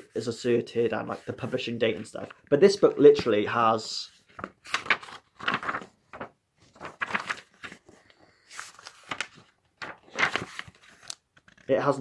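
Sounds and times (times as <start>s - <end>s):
book pages flipping: 4.1s - 11.8s.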